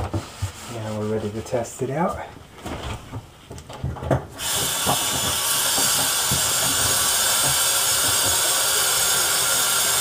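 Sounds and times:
water rushing into sink: 0:04.4 - 0:10.0.

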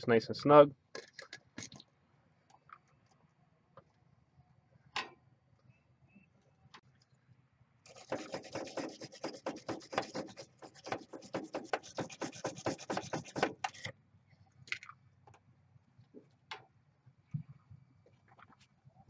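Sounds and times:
scratchy rasping strokes: 0:07.9 - 0:13.9.

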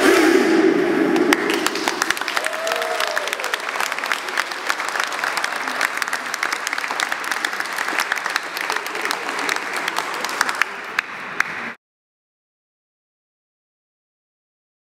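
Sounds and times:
audience applauding: 0:01.2 - 0:11.8.

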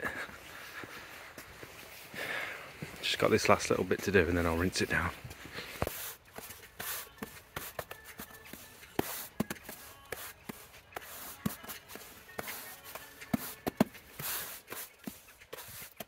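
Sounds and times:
broom bristles scraping stone: 0:05.8 - 0:16.0.

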